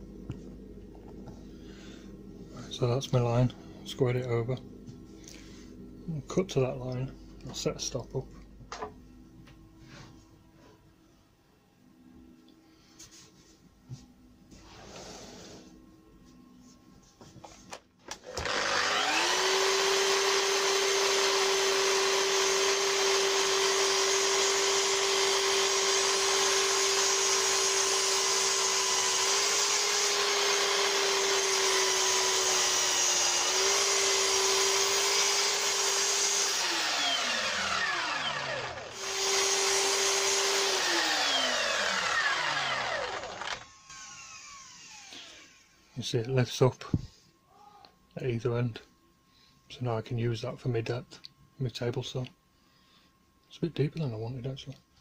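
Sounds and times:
chop saw motor whining: 18.1s - 45.8s
saw blade cutting wood: 18.2s - 45.6s.

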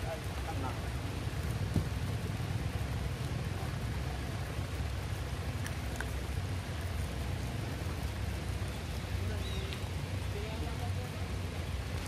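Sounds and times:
faint rain drop ticks: 0.0s - 12.0s
steady rain on wet ground: 0.0s - 12.0s.

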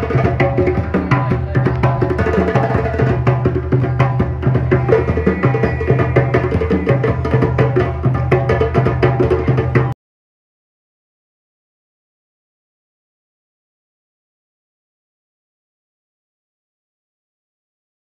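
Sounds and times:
fast hand drum percussion: 0.0s - 10.0s.

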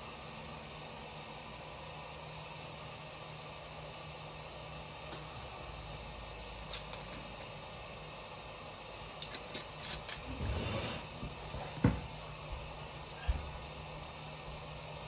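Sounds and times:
scraping or rustling: 9.8s - 11.3s.

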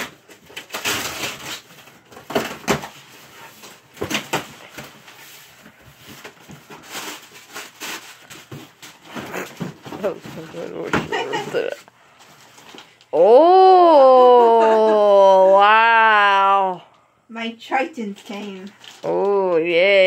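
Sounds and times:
packing tape ripping: 0.0s - 3.1s, 6.6s - 9.6s
plastic packing crinkling: 0.0s - 13.1s, 18.1s - 19.6s.

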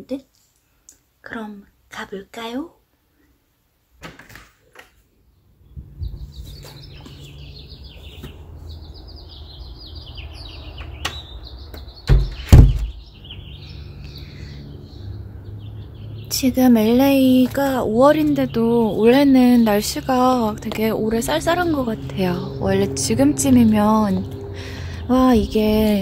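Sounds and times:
small birds twittering: 5.2s - 26.0s
loud thumps: 12.0s - 13.0s
low outdoor rumble: 13.0s - 26.0s.

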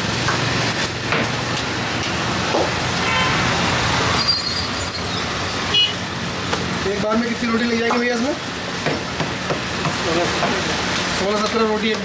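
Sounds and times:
road traffic: 0.0s - 12.0s
car horn toot: 5.7s - 6.0s.

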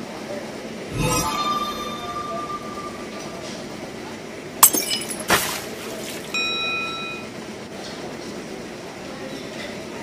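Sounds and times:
ringing notification chime: 0.9s - 4.0s.

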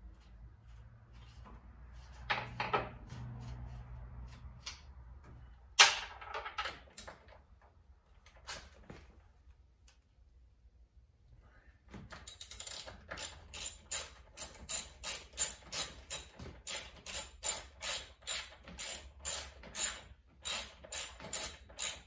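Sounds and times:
wrench clicking on bolts: 12.2s - 22.0s.

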